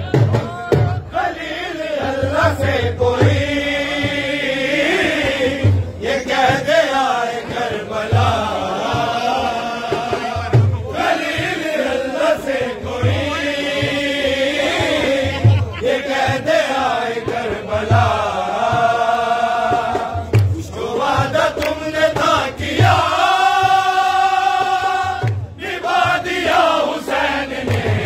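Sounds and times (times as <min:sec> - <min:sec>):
men chanting a lament: 0:00.0 - 0:28.0.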